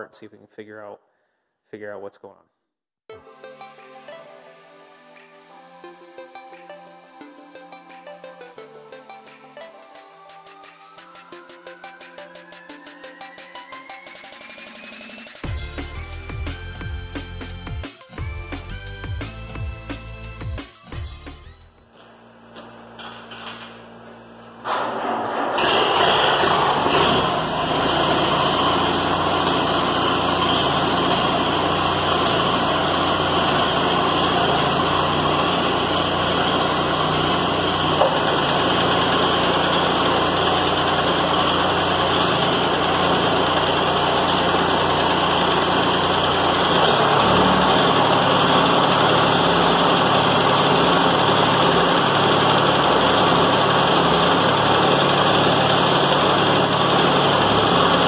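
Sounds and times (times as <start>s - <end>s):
tractor engine running: 24.6s - 58.0s
hydraulic pump stuttering: 24.7s - 58.0s.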